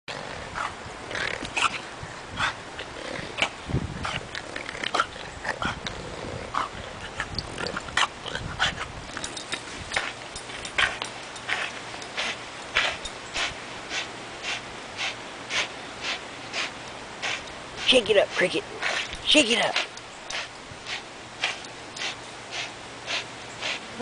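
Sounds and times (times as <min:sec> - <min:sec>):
dog growling: 0:04.1 - 0:08.6.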